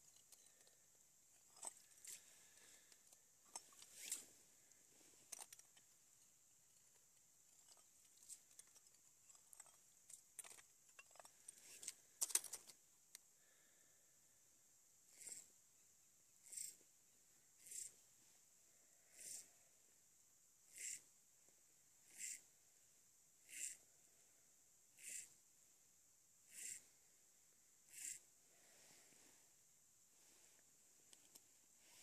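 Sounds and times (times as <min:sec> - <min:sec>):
ice-fishing gear clicking and scraping: 0:00.0 - 0:00.8, 0:01.4 - 0:12.8, 0:31.1 - 0:32.0.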